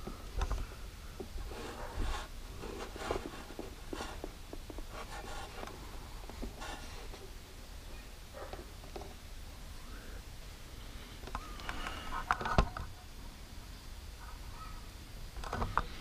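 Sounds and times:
wires being handled: 0.0s - 7.3s.

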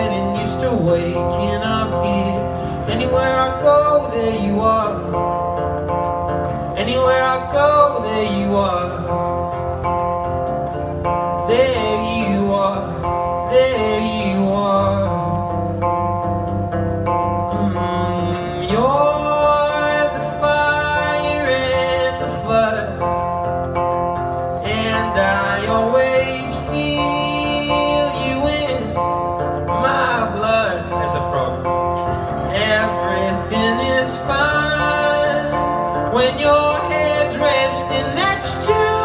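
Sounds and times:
acoustic guitar strumming: 0.0s - 39.0s
person singing: 17.4s - 23.4s, 24.6s - 39.0s.

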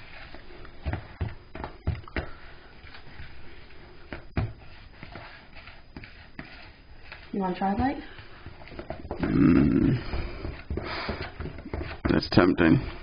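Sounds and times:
spoon stirring thick icing: 0.0s - 9.4s.

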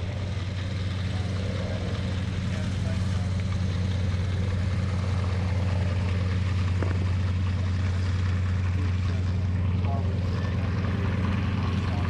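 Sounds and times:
aircraft engines droning: 0.0s - 12.0s.

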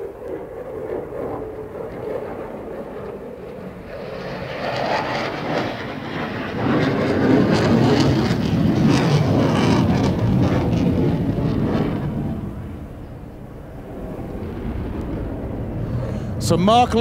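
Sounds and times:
fighter jet roar: 0.0s - 17.0s.

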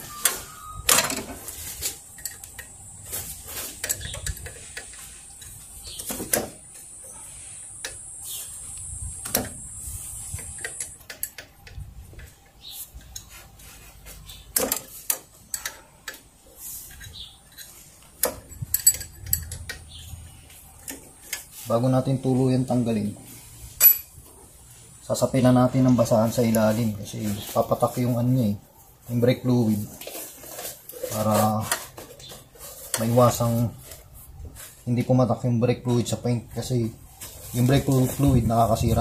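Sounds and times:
spanner clinking on metal fittings: 16.9s - 19.9s, 23.8s - 24.1s.

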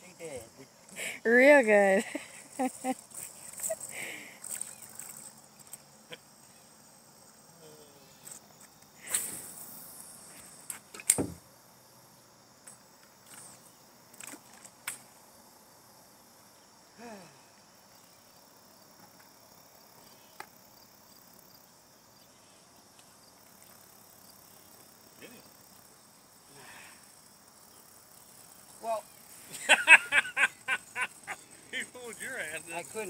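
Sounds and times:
crickets chirping: 0.0s - 33.0s
fishing line whizzing off reel: 9.0s - 9.8s.

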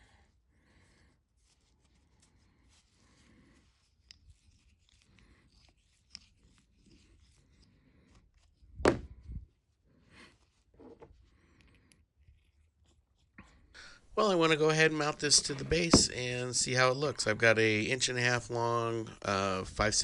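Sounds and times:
thump: 8.8s - 9.3s
light handling sounds: 14.4s - 16.5s.

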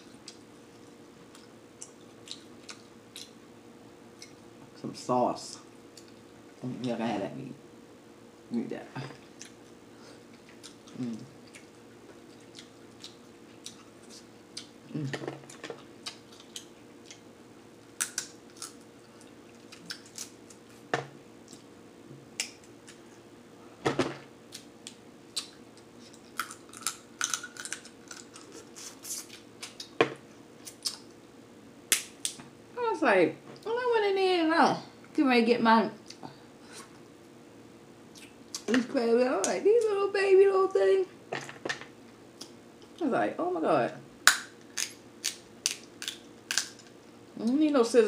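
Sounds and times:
chewing and mouth sounds: 0.0s - 3.4s, 9.2s - 17.3s, 18.0s - 20.8s, 24.5s - 30.0s
crab shells cracking: 18.0s - 20.6s, 26.1s - 28.9s, 44.2s - 47.0s.

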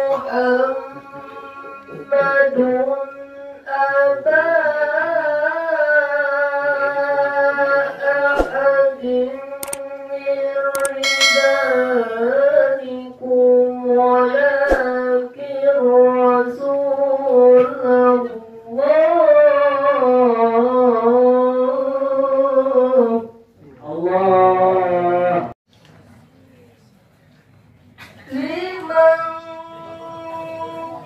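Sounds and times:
man reciting melodically: 0.0s - 25.6s
sharp clicks: 9.6s - 9.8s, 10.8s - 11.0s.

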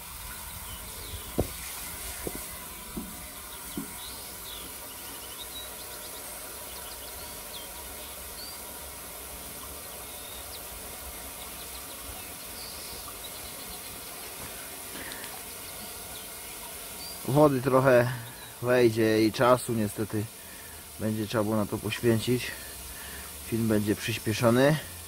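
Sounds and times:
birds chirping faintly: 0.0s - 25.0s
hose water splashing into tank: 0.0s - 25.0s
light knocks: 1.3s - 1.6s, 2.2s - 4.0s.

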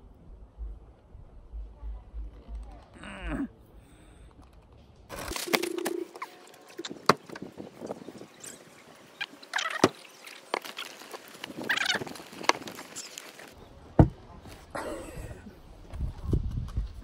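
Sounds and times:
plastic bag crinkling: 5.1s - 6.8s, 10.2s - 13.6s.

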